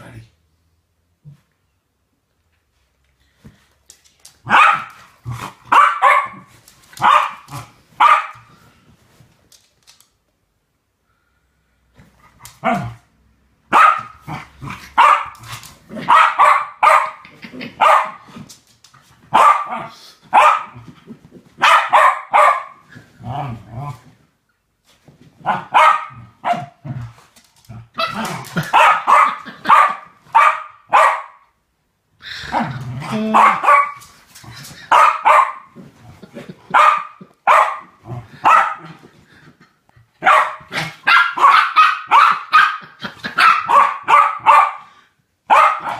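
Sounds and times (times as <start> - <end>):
dog barking: 4.5 - 5.0, 5.7 - 8.5, 13.7 - 14.2, 15.0 - 15.3, 16.0 - 17.2, 17.8 - 18.2, 19.3 - 20.8, 21.6 - 22.8, 25.4 - 26.8, 28.0 - 31.4, 33.3 - 34.0, 34.9 - 35.8, 36.7 - 38.9, 40.2 - 44.9, 45.5 - 45.9.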